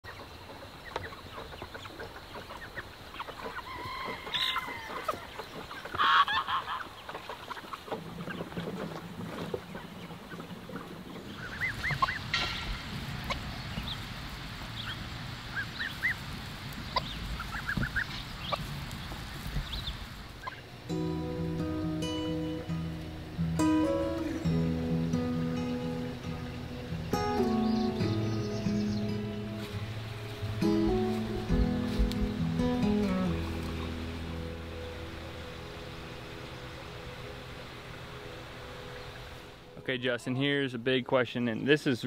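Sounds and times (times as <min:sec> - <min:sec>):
fowl honking and yelping: 0:00.1 - 0:09.0, 0:09.7 - 0:13.5, 0:14.8 - 0:16.2, 0:16.9 - 0:18.7, 0:20.4 - 0:20.8.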